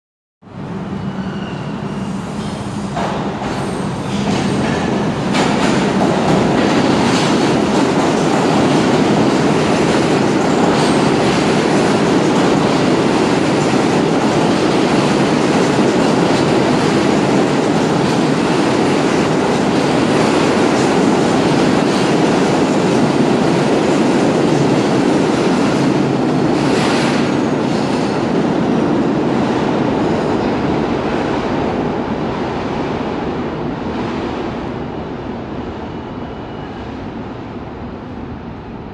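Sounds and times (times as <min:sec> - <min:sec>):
subway train wheels rumbling on rail: 0:00.4 - 0:38.9
clickety-clack from rail joints: 0:02.3 - 0:30.5.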